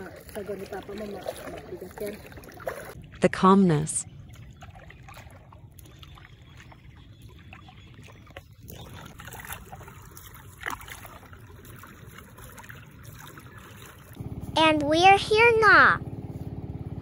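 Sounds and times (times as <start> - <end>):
paddle pulling through water: 0.0 - 3.2, 4.1 - 17.0
light splashing and trickling: 0.0 - 3.3, 4.0 - 14.6.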